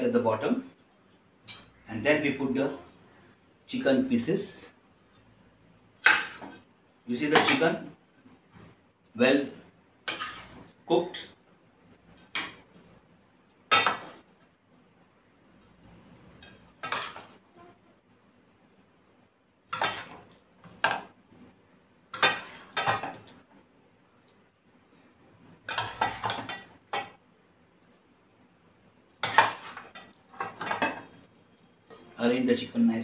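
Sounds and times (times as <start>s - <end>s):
spoon scraping metal pot: 10.1s - 10.6s.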